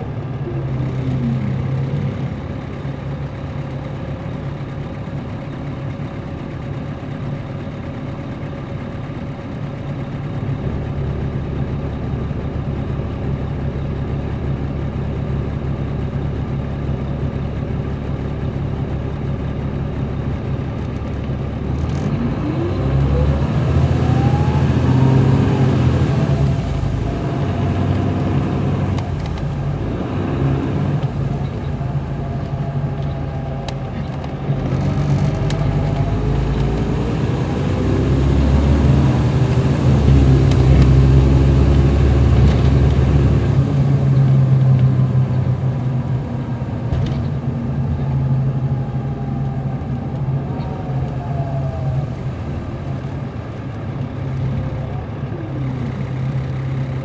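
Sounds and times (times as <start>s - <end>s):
engine whine rising: 0.0s - 4.2s, 20.3s - 57.0s
bus diesel engine running: 0.0s - 57.0s.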